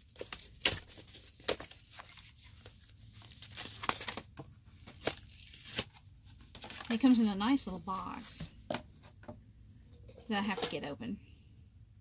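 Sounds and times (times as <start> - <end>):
cardboard tearing and crinkling: 0.0 - 6.9.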